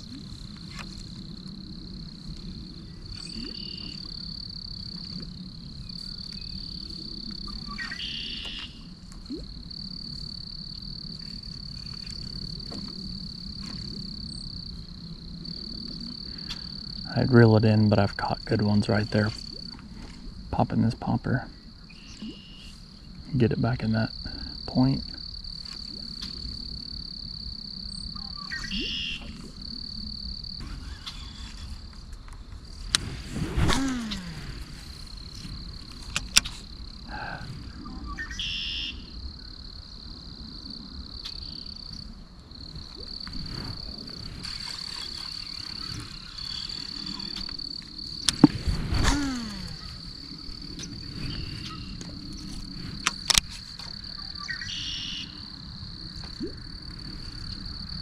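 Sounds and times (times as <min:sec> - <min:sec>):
insect chorus: 0:00.0 - 0:58.0
frog calls: 0:02.7 - 0:12.2, 0:15.5 - 0:32.0, 0:33.7 - 0:43.8, 0:44.4 - 0:58.0
whir falling in pitch: 0:33.6 - 0:34.8, 0:49.0 - 0:50.1.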